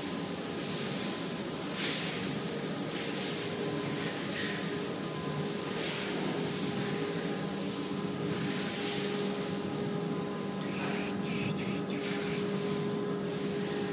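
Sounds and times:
spray-painting machine hiss: 0.0s - 13.9s
machine hum: 3.4s - 13.9s.

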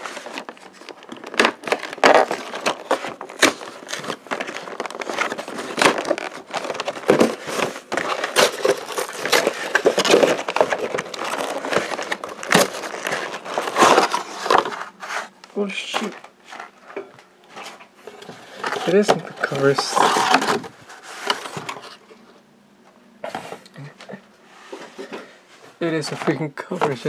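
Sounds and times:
plastic packaging crackling: 0.0s - 16.8s, 18.2s - 22.0s.

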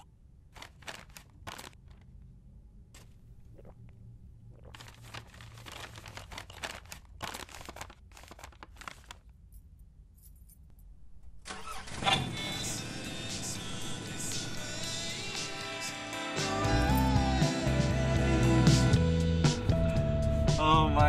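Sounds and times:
paper bag crinkling: 0.5s - 2.1s, 4.6s - 9.3s
music: 12.6s - 21.0s.

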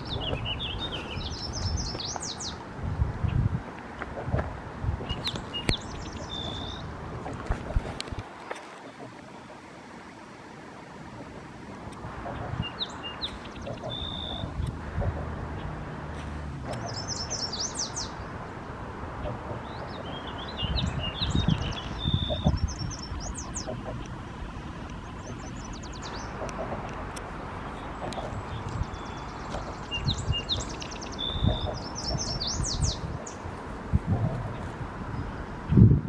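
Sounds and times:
songbirds singing: 0.0s - 9.7s, 11.0s - 35.8s
steady background hiss: 0.0s - 35.7s
low bumps: 11.2s - 36.0s
high chirps: 12.4s - 14.6s.

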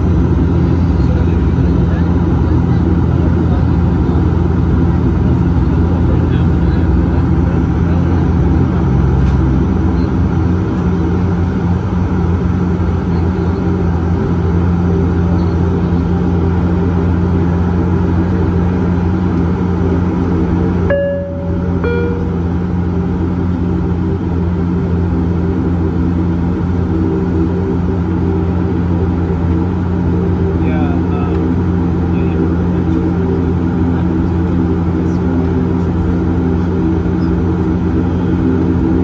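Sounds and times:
turboprop engines droning: 0.0s - 39.0s
two-note falling chime: 20.9s - 22.8s.

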